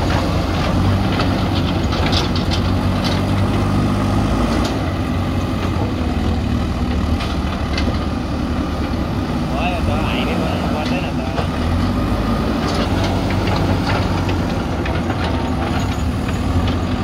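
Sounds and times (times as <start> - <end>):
metallic clanks and knocks: 0.0 - 3.6, 12.6 - 17.0
diesel engine running: 0.0 - 17.0.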